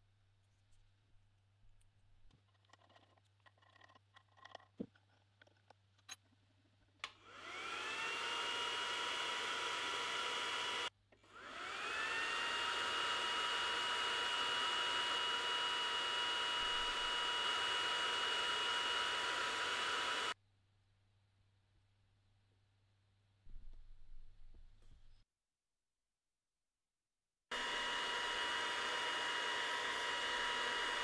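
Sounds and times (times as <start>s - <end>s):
laser engraver fan whirring: 7.3s - 20.4s, 27.5s - 31.0s.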